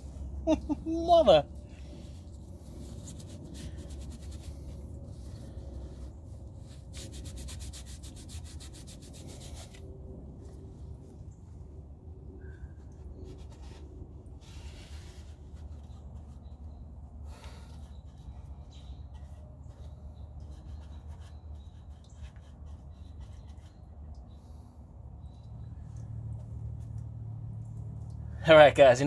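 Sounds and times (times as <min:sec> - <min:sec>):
steady low hum: 0:00.0 - 0:28.4
paintbrush strokes on sheet metal: 0:01.9 - 0:09.8, 0:13.0 - 0:24.6.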